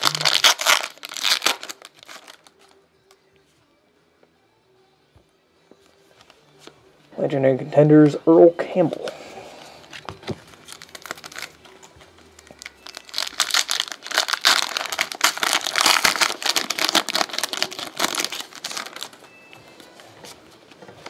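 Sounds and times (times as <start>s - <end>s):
plastic packaging crinkling: 0.0s - 2.7s, 9.9s - 19.2s.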